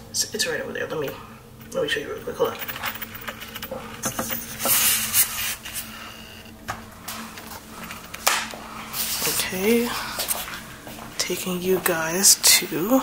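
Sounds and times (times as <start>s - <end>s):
faint steady hum: 0.0s - 13.0s
rustling and scraping handling: 1.0s - 11.1s.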